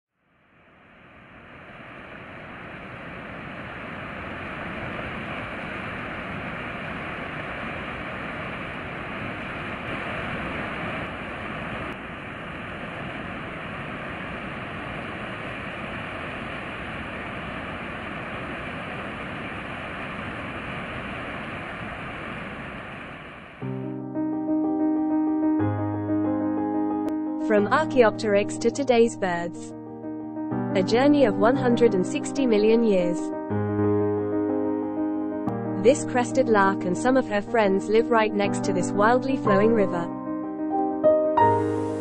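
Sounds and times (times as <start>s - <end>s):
river rushing: 1.2s - 23.6s.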